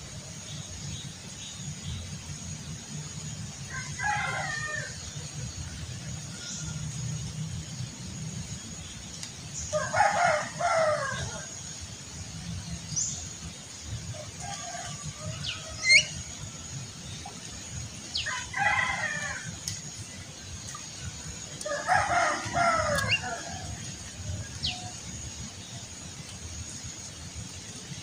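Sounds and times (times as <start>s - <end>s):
rooster crowing: 9.8s - 11.4s, 21.6s - 23.8s.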